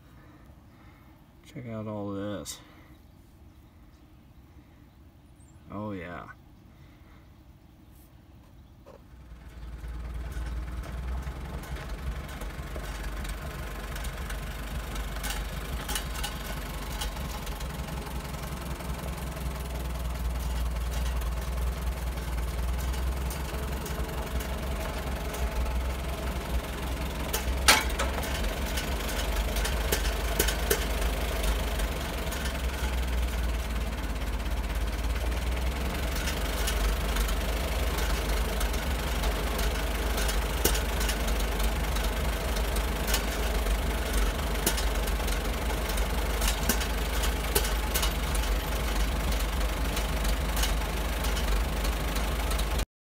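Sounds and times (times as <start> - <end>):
tractor engine running: 8.8 - 52.9
sharp metal clank: 27.2 - 31.0.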